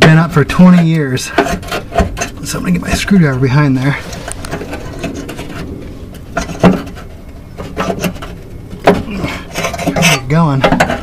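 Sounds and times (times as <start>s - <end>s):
screwdriver scraping sheet metal: 0.6s - 3.1s, 3.9s - 8.4s.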